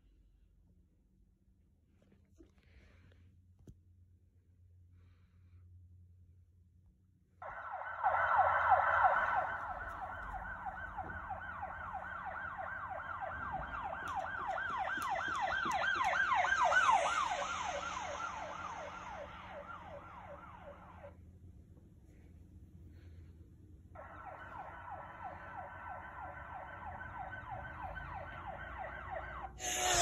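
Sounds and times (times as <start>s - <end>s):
fast yelping siren: 7.4s - 21.1s, 24.0s - 30.0s.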